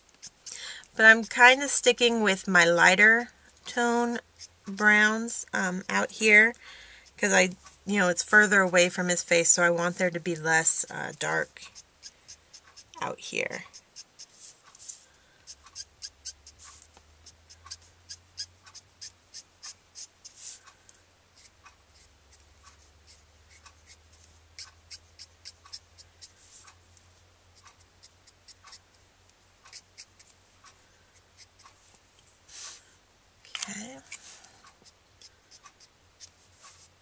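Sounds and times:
marker nib scratching on cardstock: 0.1s - 2.4s, 3.7s - 5.1s, 11.6s - 20.8s, 21.4s - 26.8s, 27.6s - 29.0s, 29.6s - 31.8s, 33.6s - 37.0s.

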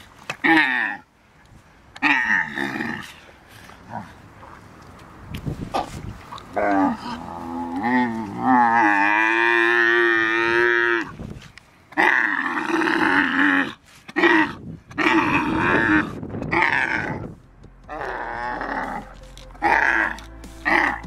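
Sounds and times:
camel groaning calls: 0.4s - 1.1s, 2.0s - 4.2s, 6.5s - 11.2s, 11.9s - 21.0s.

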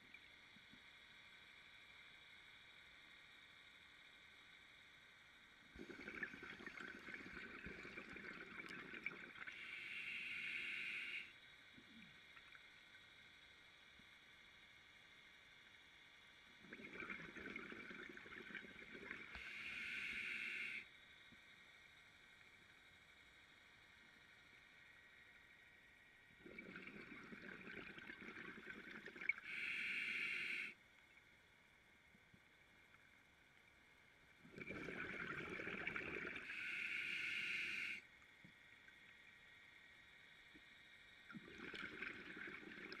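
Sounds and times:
underwater bubbling and gurgling: 5.4s - 14.8s, 16.1s - 31.4s, 34.0s - 43.0s
regulator hiss of inhaling: 9.5s - 11.4s, 19.3s - 20.9s, 29.4s - 30.8s, 36.4s - 38.1s.

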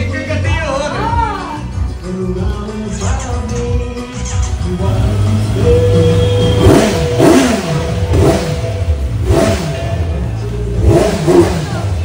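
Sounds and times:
motorcycle engine revving: 4.3s - 12.0s.

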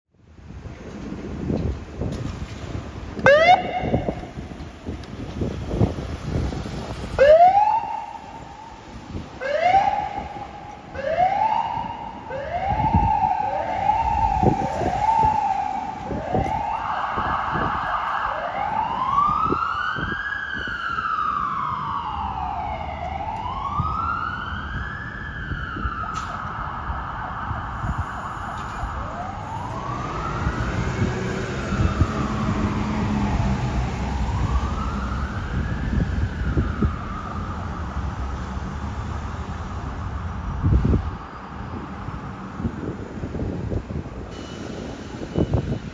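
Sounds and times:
emergency vehicle siren: 2.1s - 45.9s.

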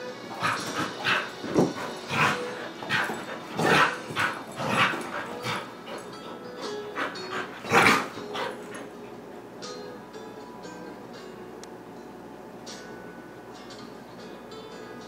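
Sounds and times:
dog barking: 3.6s - 5.5s.

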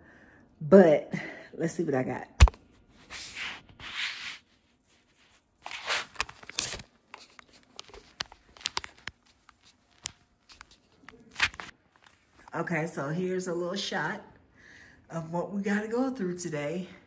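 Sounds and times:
phone handling rustling: 5.6s - 12.2s.

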